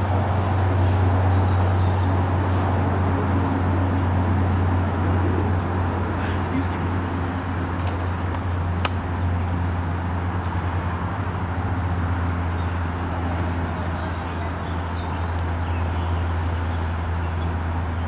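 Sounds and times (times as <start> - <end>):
low outdoor hum: 0.0 - 18.0
sharp click: 8.8 - 9.0.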